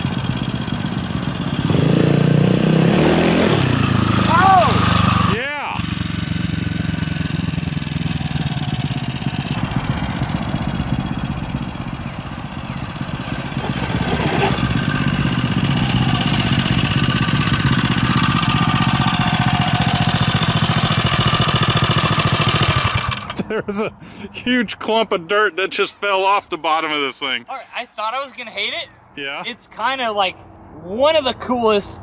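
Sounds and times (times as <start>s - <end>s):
dirt bike engine revving: 0.0s - 23.4s.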